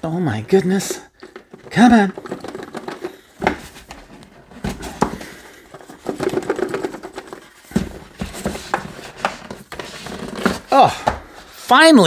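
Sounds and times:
cardboard rubbing and scraping: 0:03.4 - 0:10.8.

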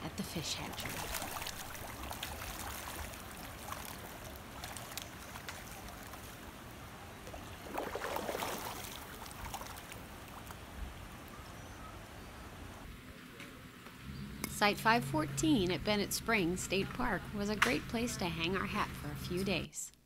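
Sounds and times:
water flowing and splashing: 0:00.0 - 0:11.3
fish splashing: 0:00.6 - 0:10.6.

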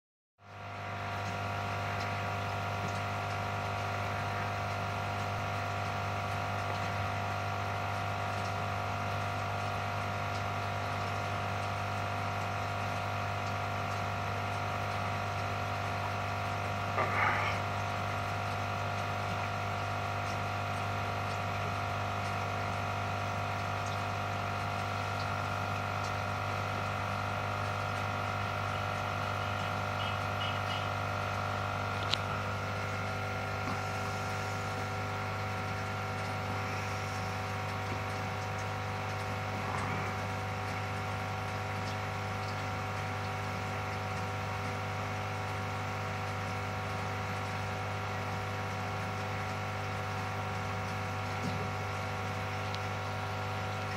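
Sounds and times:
aquarium pump humming: 0:00.4 - 0:53.9
faint running water: 0:00.5 - 0:53.9.

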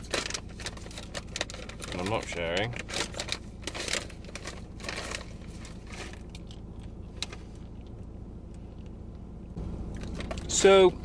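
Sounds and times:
plastic bag crinkling: 0:00.0 - 0:06.6
low steady rumble: 0:00.0 - 0:11.0.

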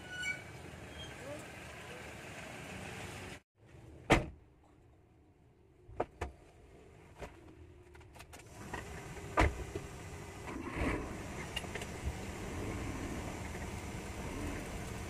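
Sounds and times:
loud thump: 0:04.1 - 0:04.4.

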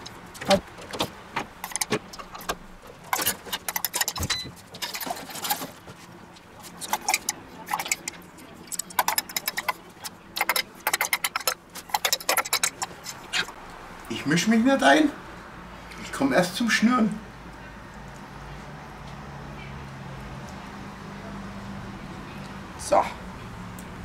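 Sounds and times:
spoon scraping a metal bowl: 0:06.8 - 0:13.5.

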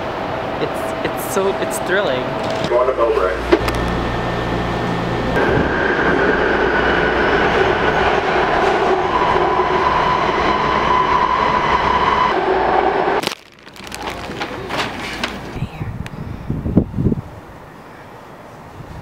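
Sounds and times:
train whining tones: 0:00.0 - 0:13.2
train wheels rumbling on rail: 0:04.7 - 0:13.2.

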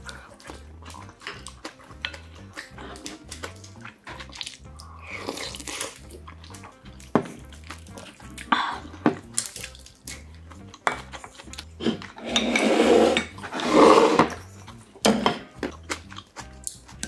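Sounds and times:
soft background music: 0:00.0 - 0:17.0
person slurping soup: 0:11.8 - 0:14.4
wooden spoon scraping clay pot: 0:11.8 - 0:14.4
dishes knocking: 0:15.0 - 0:15.5.

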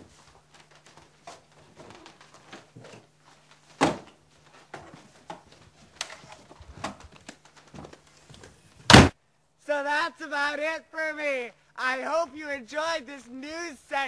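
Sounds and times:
shuffling footsteps: 0:00.0 - 0:08.8.

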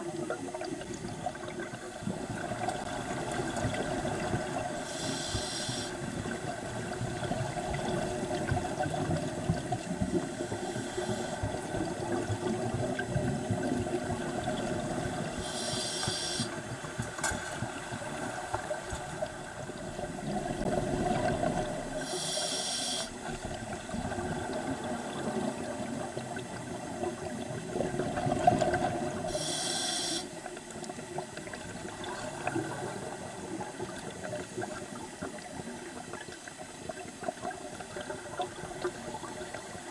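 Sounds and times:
regulator hissing inhalations: 0:04.9 - 0:05.9, 0:15.4 - 0:16.6, 0:22.0 - 0:23.1, 0:29.3 - 0:30.3.

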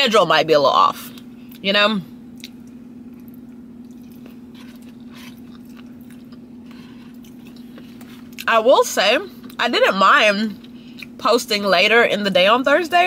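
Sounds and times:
steady low hum: 0:00.0 - 0:13.0
person chewing food: 0:02.3 - 0:08.5, 0:10.6 - 0:11.2.

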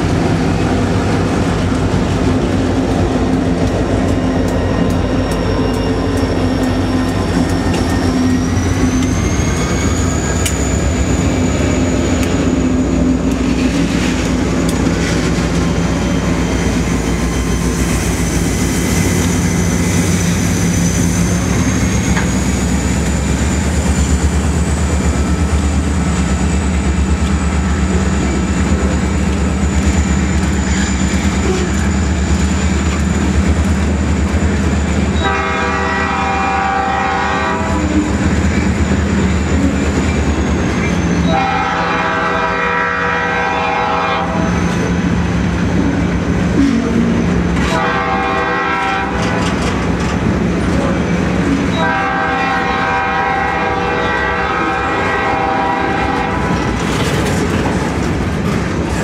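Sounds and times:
diesel locomotive engines droning: 0:00.0 - 0:59.0
train horn blasts: 0:35.2 - 0:38.2, 0:41.2 - 0:44.5, 0:46.6 - 0:49.7, 0:51.7 - 0:56.7
freight cars rolling over rails: 0:54.8 - 0:59.0.

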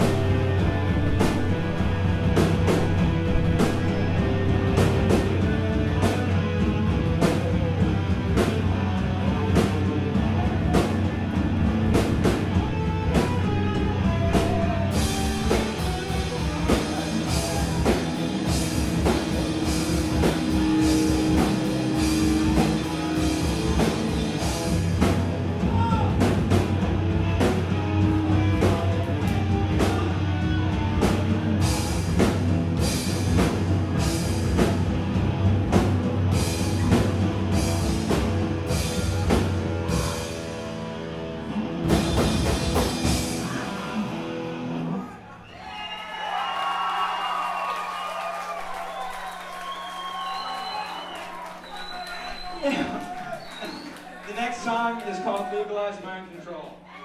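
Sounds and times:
steady drumming: 0:00.0 - 0:40.6, 0:41.7 - 0:44.2
rock band playing live: 0:00.0 - 0:45.1.

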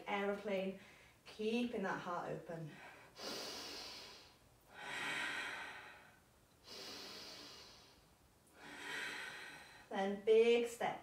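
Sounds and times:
woman breathing slowly: 0:00.8 - 0:01.3, 0:02.7 - 0:09.9.

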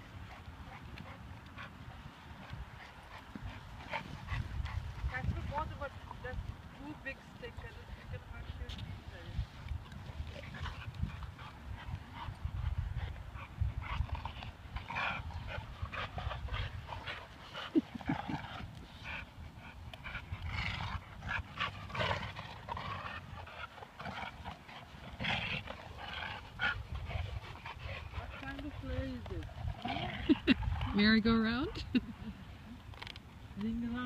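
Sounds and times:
dogs panting: 0:00.0 - 0:34.0.

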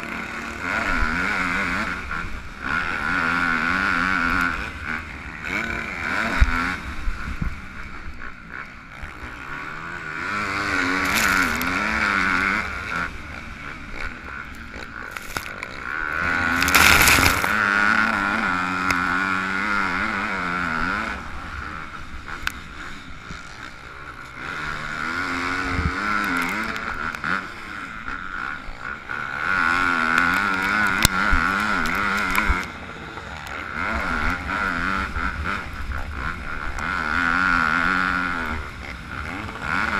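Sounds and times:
motocross engine revving: 0:00.0 - 0:39.9
wind rumble on microphone: 0:06.3 - 0:08.2.

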